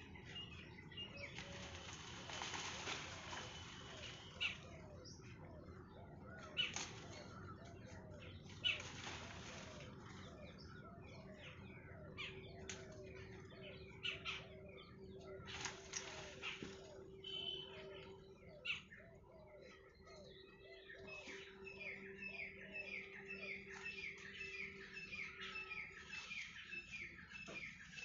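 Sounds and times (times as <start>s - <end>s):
small birds chirping: 0.0s - 28.0s
leaves rustling: 0.2s - 4.9s, 6.4s - 10.7s, 15.4s - 18.2s, 22.9s - 28.0s.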